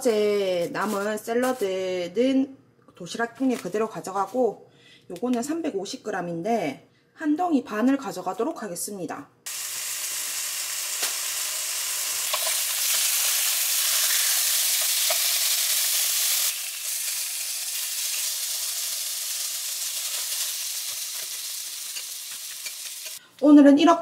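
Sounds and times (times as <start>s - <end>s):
beef sizzling in a pan: 9.5s - 23.2s
tongs clicking on a pan: 21.1s - 23.2s.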